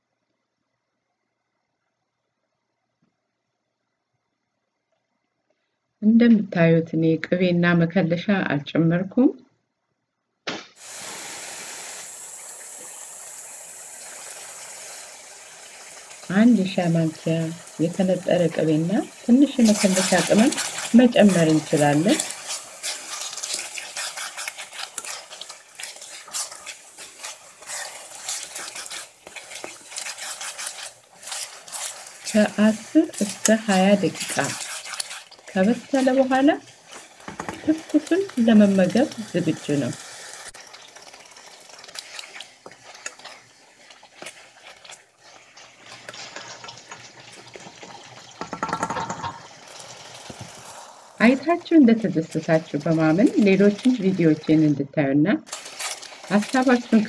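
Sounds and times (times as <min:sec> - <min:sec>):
stew sizzling: 0:10.8 - 0:54.8, 0:55.4 - 0:57.0
spatula stirring watery sauce: 0:13.5 - 0:54.7, 0:55.5 - 0:57.0.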